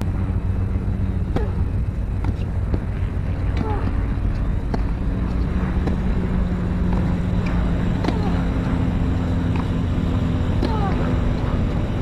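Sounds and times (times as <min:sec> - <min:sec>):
low engine-like hum: 0:00.0 - 0:12.0
tennis ball bounces: 0:01.3 - 0:11.5
player grunting: 0:08.0 - 0:08.5, 0:10.6 - 0:11.2.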